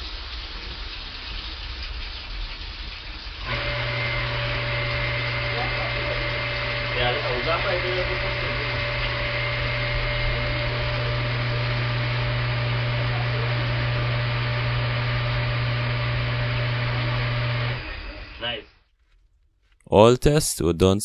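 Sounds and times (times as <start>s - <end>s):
electric water pump running: 3.2s - 18.7s.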